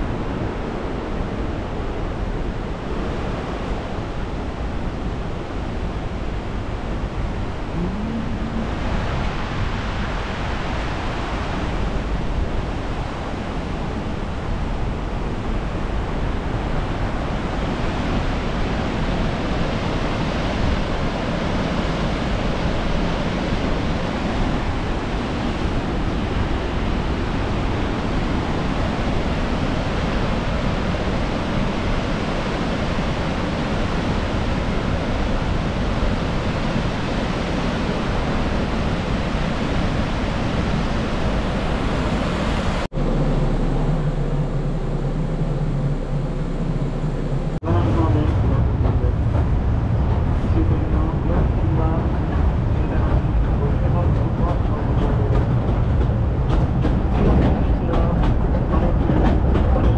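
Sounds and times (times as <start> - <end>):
fast-flowing river water: 0.0 - 43.0
low vehicle hum: 6.3 - 9.8, 42.8 - 59.9.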